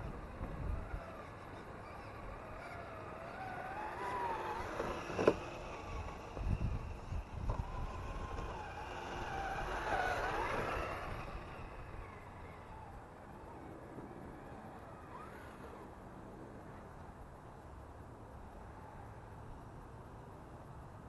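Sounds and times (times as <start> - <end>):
toy truck motor whining: 0.0 - 13.5, 14.4 - 15.9.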